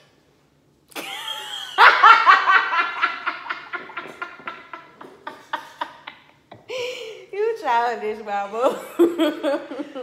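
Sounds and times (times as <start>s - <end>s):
woman laughing hard: 1.0s - 7.2s, 8.8s - 10.0s.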